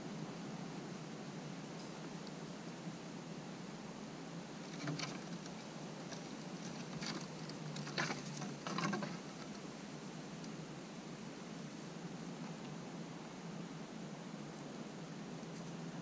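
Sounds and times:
squirrel claws scratching on wood: 0:04.6 - 0:09.6.

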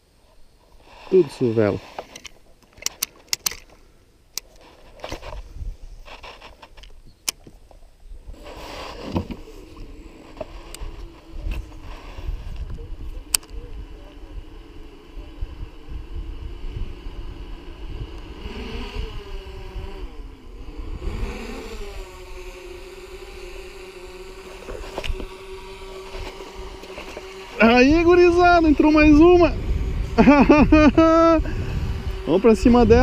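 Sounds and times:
fishing tackle clicks and knocks: 0:02.1 - 0:04.5
boat motor buzzing: 0:08.5 - 0:33.0.

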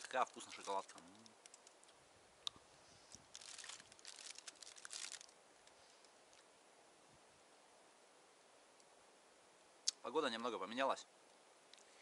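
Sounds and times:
wrapper crinkling: 0:00.0 - 0:01.9, 0:03.3 - 0:05.4.

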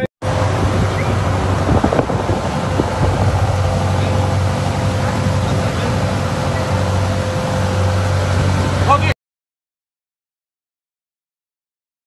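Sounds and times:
wind on microphone: 0:00.0 - 0:09.0
motorboat engine humming: 0:00.0 - 0:09.2
water rushing: 0:00.0 - 0:09.2.

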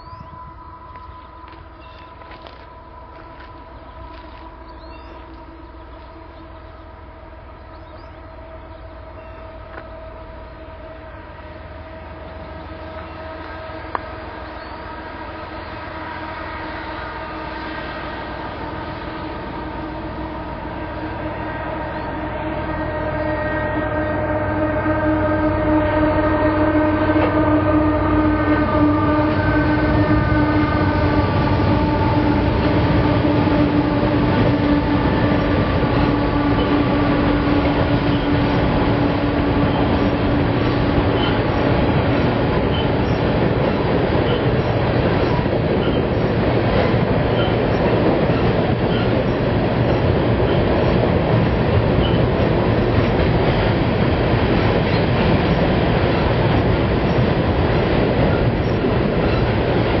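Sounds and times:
train horn chord: 0:00.0 - 0:49.2
freight train rolling past: 0:00.0 - 1:00.0.

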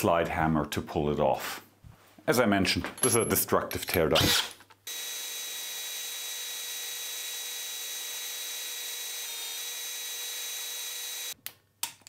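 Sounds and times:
cordless drill boring metal: 0:04.2 - 0:11.4.

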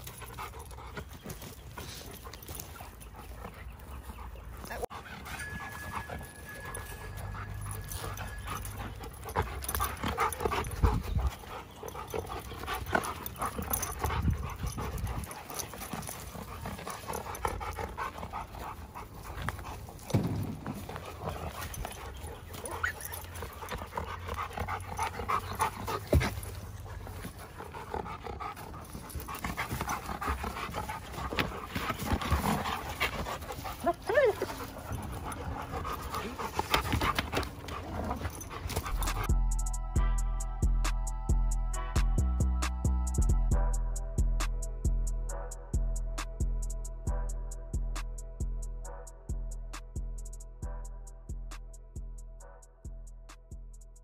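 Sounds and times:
dogs panting: 0:00.0 - 0:41.0
dogs growling while tussling: 0:08.4 - 0:39.3.

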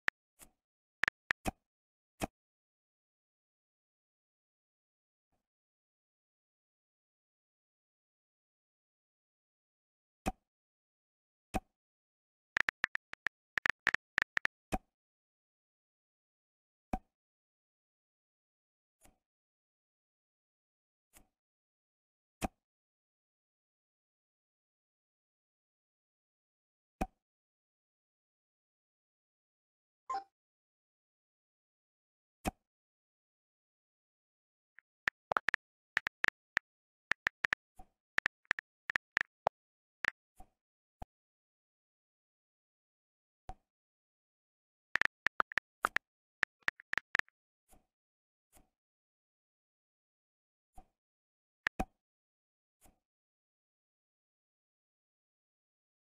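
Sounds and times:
keyboard tap clicks: 0:01.0 - 0:01.4, 0:12.6 - 0:14.5, 0:34.8 - 0:37.6, 0:38.2 - 0:39.5, 0:45.0 - 0:47.3.

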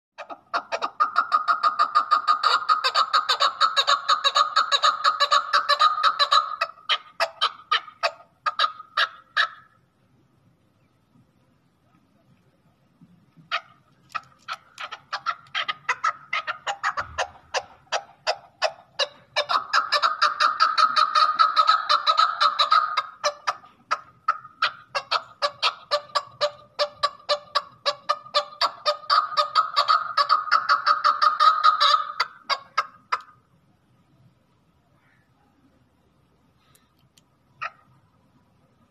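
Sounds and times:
partridge calling chuck notes: 0:13.2 - 0:33.4.

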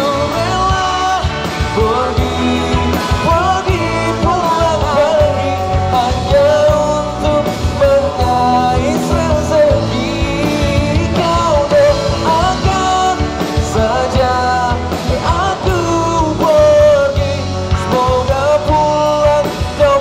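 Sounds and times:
bass: 0:00.0 - 0:20.0
drum kit: 0:00.0 - 0:20.0
electric guitars: 0:00.0 - 0:20.0
melodic lead line: 0:00.0 - 0:20.0.

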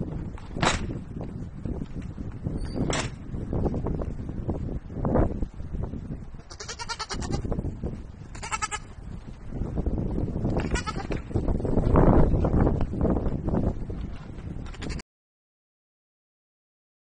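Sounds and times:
baby goats bleating: 0:06.4 - 0:07.5, 0:08.4 - 0:08.9, 0:10.6 - 0:11.2.

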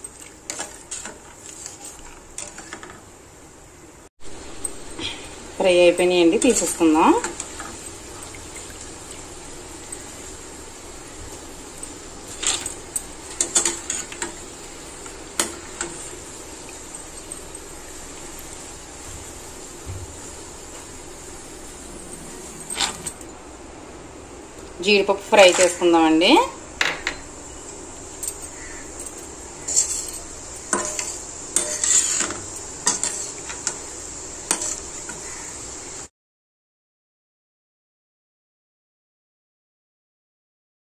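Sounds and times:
skimmer scraping and clinking on pot: 0:00.0 - 0:03.0, 0:11.8 - 0:14.4, 0:22.0 - 0:23.3, 0:28.2 - 0:33.9
low oil sizzle: 0:00.0 - 0:36.1.

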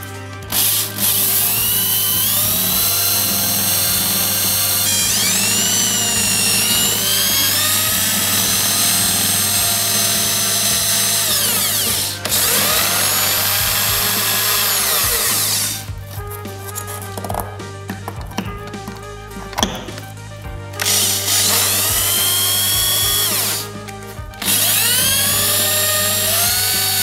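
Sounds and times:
cordless drill motor whining: 0:00.0 - 0:15.9, 0:20.8 - 0:23.7, 0:24.4 - 0:27.0.

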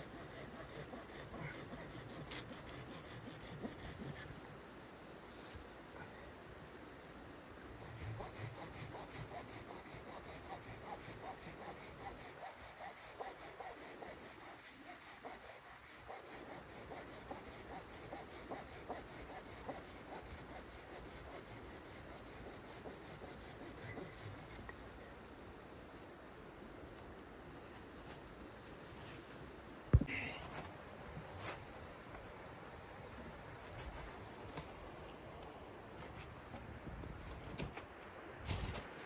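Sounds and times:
hand saw cutting wood: 0:00.0 - 0:04.2, 0:07.8 - 0:24.7.

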